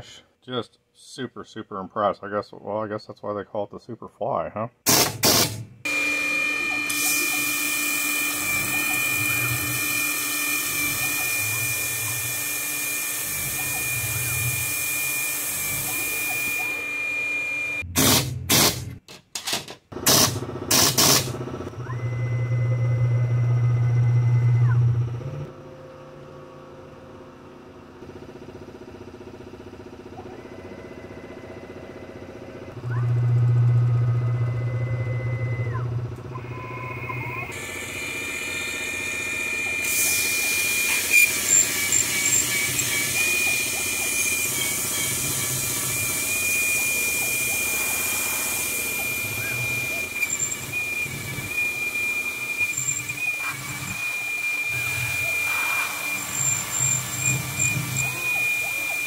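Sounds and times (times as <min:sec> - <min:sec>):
milling machine spindle whine: 0:05.9 - 0:17.8, 0:21.6 - 0:25.5, 0:30.4 - 0:59.0
mist coolant hissing: 0:39.8 - 0:50.7.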